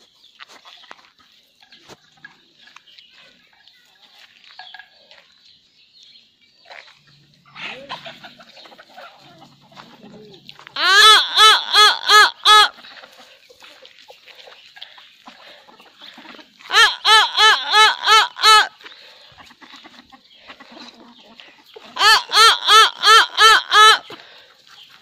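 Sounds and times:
chickens clucking: 0:00.0 - 0:25.0
loud chicken call: 0:07.5 - 0:09.8, 0:10.6 - 0:12.8, 0:16.1 - 0:20.9, 0:21.8 - 0:24.3.

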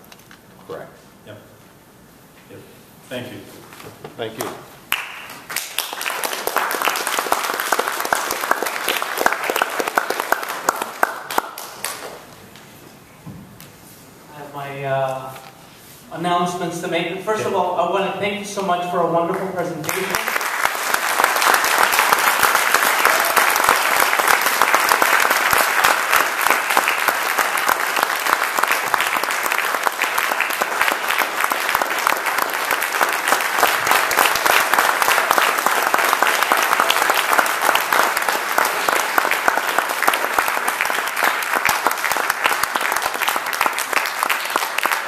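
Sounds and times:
audience applauding: 0:04.9 - 0:12.3, 0:19.3 - 0:45.0.

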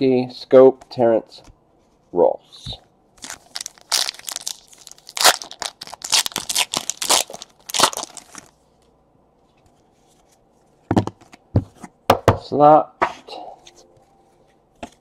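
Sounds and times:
card pack wrapper tearing: 0:03.2 - 0:08.5.

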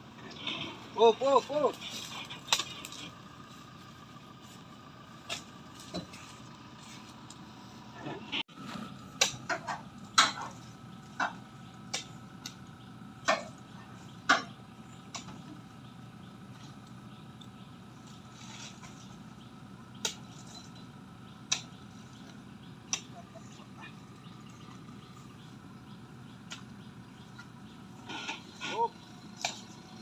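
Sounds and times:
knocks and clinks on truck bed: 0:09.2 - 0:12.1, 0:14.2 - 0:14.6.

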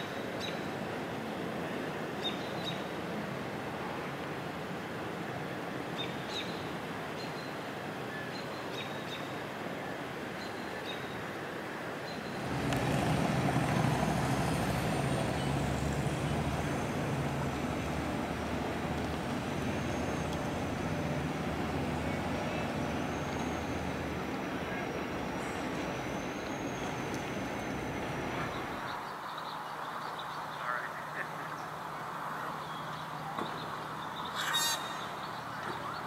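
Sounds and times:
large vehicle engine rumble: 0:12.3 - 0:28.9.

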